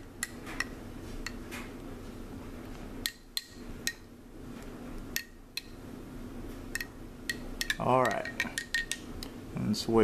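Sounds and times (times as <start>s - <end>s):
spoon clinking against glass: 6.8s - 9.0s.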